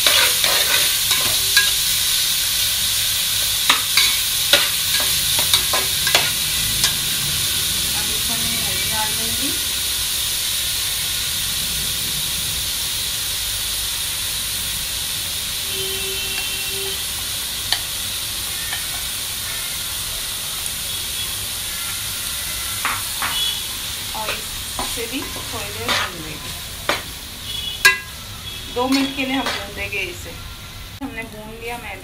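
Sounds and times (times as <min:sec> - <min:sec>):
metal spoon scraping a pot: 0:00.0 - 0:01.8, 0:03.7 - 0:07.0, 0:24.2 - 0:26.3
vegetables sizzling in a pot: 0:00.0 - 0:32.0.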